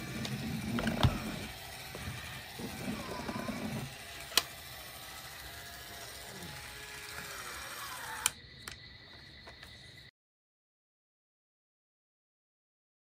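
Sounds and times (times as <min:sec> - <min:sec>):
plastic toy clicks: 0:04.2 - 0:04.8
small ticks: 0:08.1 - 0:09.8.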